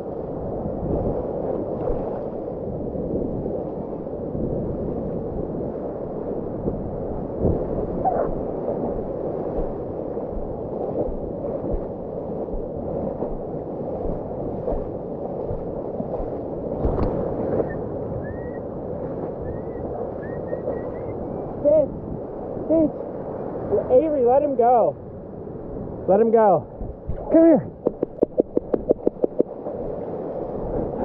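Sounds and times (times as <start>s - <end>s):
muffled surf churning: 0.0s - 31.0s
water splashes: 0.8s - 4.0s, 7.3s - 23.9s, 27.0s - 31.0s.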